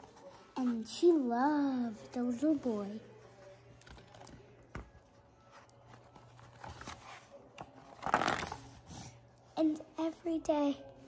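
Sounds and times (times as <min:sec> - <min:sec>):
book pages rustling: 0:03.4 - 0:09.2.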